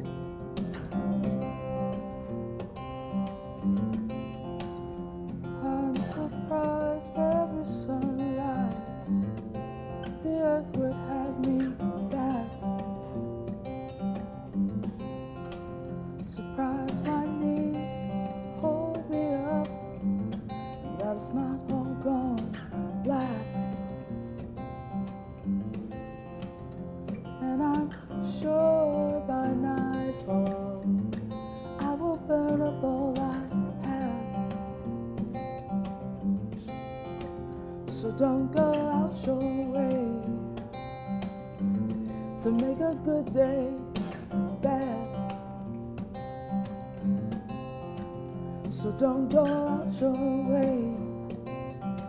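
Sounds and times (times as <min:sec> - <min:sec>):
acoustic guitar strumming: 0:00.0 - 0:52.0
person singing wordlessly: 0:05.5 - 0:09.3, 0:10.0 - 0:13.2, 0:16.2 - 0:20.0, 0:20.8 - 0:24.1, 0:27.4 - 0:35.0, 0:37.9 - 0:41.0, 0:42.3 - 0:45.7, 0:48.6 - 0:51.6.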